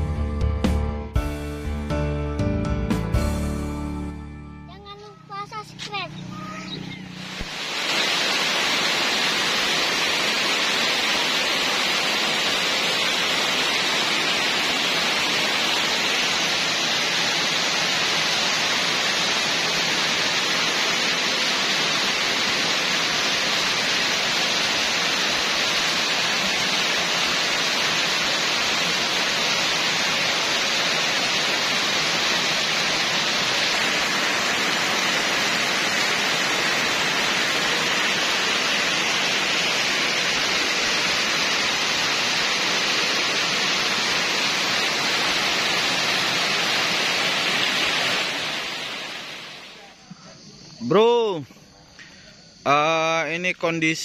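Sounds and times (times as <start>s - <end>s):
heavy rain on water: 7.2s - 49.8s.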